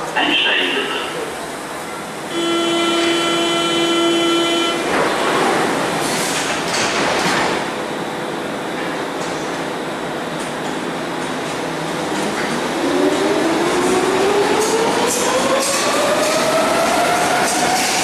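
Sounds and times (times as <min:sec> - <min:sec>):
train doors sliding shut: 0:04.3 - 0:07.9.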